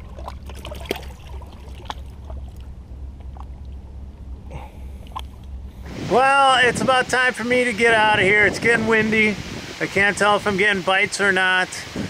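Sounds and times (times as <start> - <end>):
hand splashing in water: 0.0 - 2.7
water lapping against rocks: 0.0 - 6.3
wind rumble on microphone: 4.5 - 12.0.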